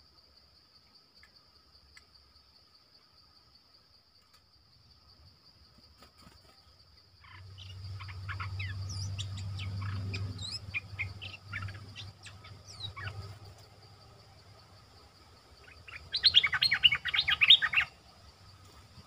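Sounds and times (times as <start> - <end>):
insect buzzing: 0.0 - 19.0
birds chattering: 7.2 - 13.7, 15.6 - 18.0.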